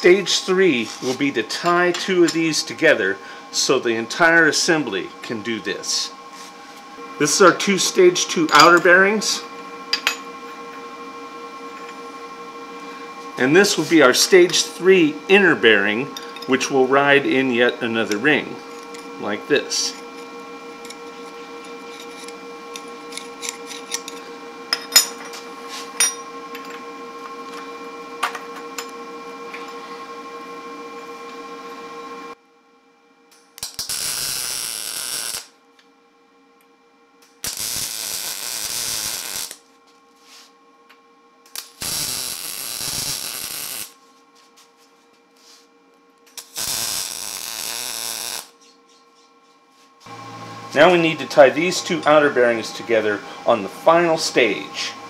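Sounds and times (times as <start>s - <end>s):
steady hum: 0.0s - 55.0s
welder tack-welding: 33.6s - 35.5s, 37.4s - 39.6s, 41.5s - 44.0s, 46.3s - 48.6s.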